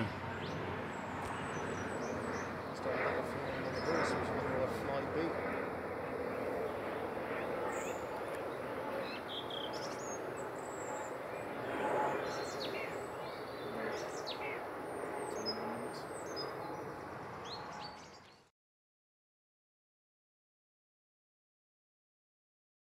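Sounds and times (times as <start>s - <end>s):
small birds chirping: 0.0s - 4.7s, 6.2s - 18.5s
turboprop airliner passing overhead: 0.0s - 18.5s.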